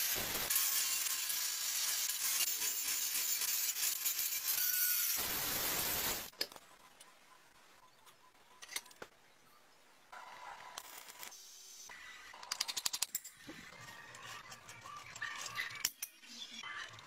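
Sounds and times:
arc welding crackling: 0.0 - 6.4.

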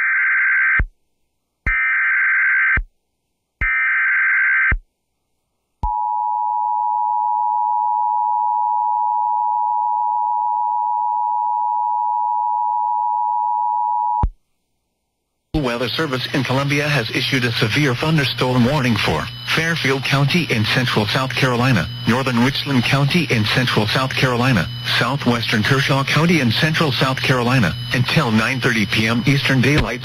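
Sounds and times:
digital data bursts: 16.5 - 30.0.

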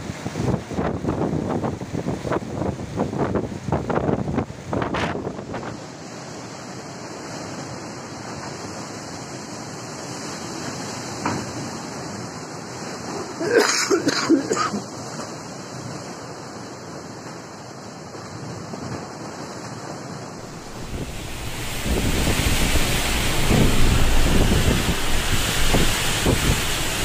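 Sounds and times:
wind buffeting microphone: 0.0 - 5.8, 20.4 - 27.0
cyclone winds: 0.0 - 27.0
fast-flowing floodwater rushing: 0.0 - 27.0
driving rain: 20.3 - 27.0
loud bursts: 20.4 - 27.0.

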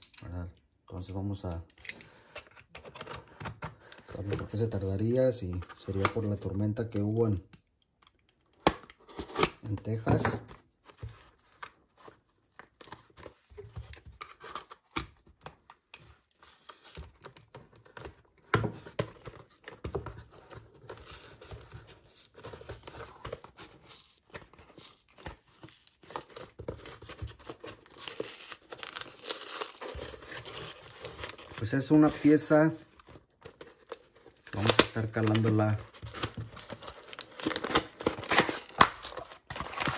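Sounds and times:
cardboard box being torn open: 34.4 - 39.9.

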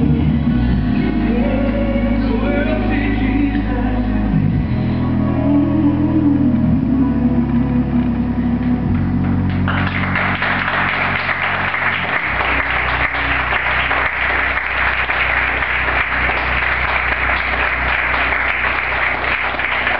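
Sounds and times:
low held music chord: 0.0 - 19.9
audience applauding: 9.5 - 19.9.

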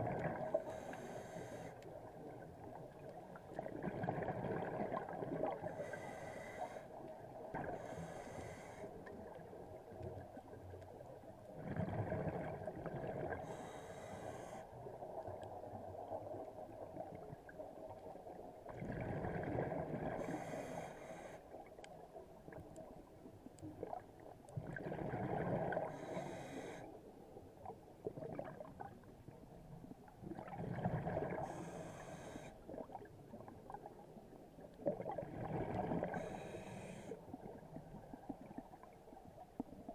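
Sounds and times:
regulator breath hiss: 13.5 - 14.6, 31.5 - 32.5, 36.2 - 37.2.

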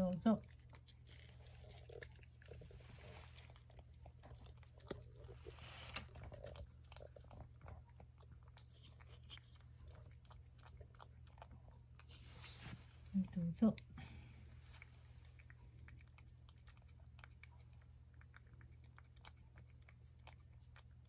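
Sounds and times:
cat licking wet clicks: 0.4 - 13.2, 13.8 - 21.0.

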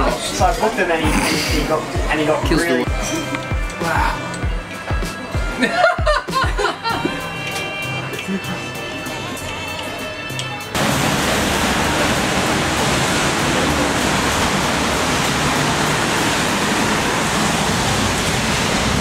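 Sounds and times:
heavy rain pouring: 10.8 - 19.0.

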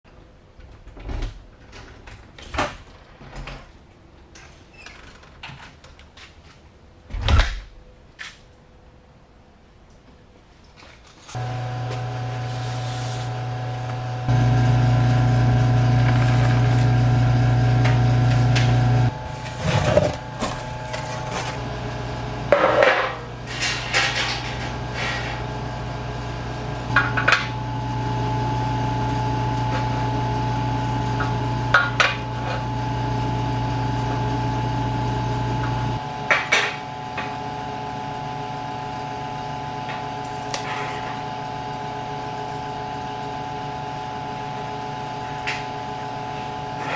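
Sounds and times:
humming drone: 11.3 - 41.8.

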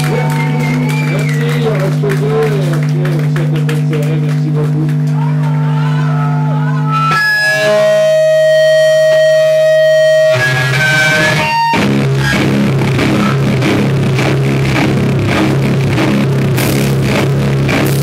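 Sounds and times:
droning electric guitar: 0.0 - 18.0
rock band playing loud: 6.9 - 18.0
drum kit: 10.4 - 18.0.

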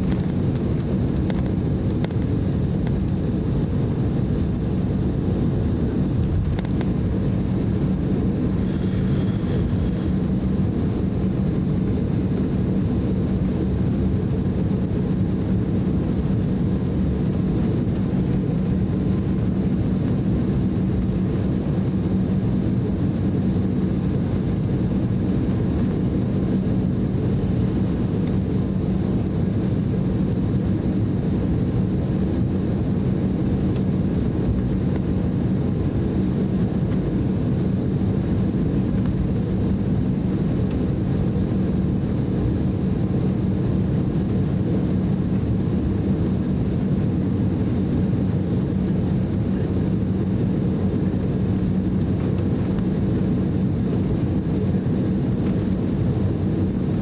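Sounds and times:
jet engine drone: 0.0 - 57.0
faint high whine: 8.6 - 10.3.

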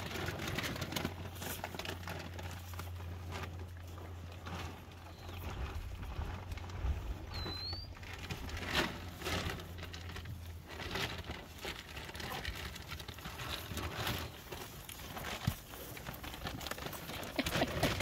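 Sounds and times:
cattle tearing grass: 0.0 - 18.0
bird chirp: 5.0 - 5.8, 7.3 - 8.0.

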